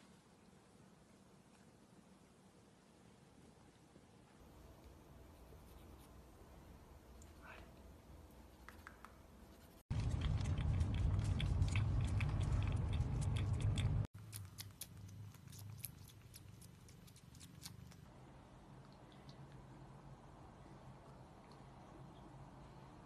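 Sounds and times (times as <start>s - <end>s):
cat biting and chewing: 9.5s - 18.1s
deep rumble: 9.9s - 14.1s.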